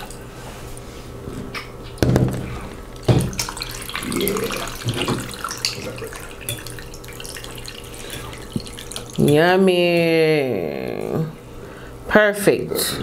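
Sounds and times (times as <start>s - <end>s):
liquid pouring over ice: 2.8s - 9.4s.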